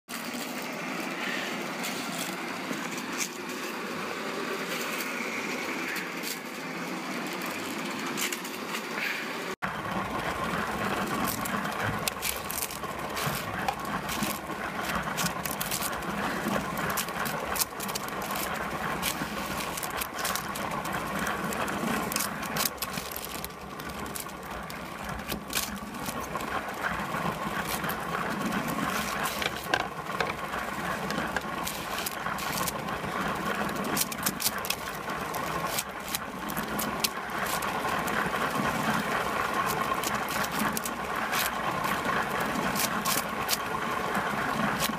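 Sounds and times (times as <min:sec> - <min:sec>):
toy train motor running: 0:00.1 - 0:44.9
clicks and rattles: 0:10.0 - 0:44.9.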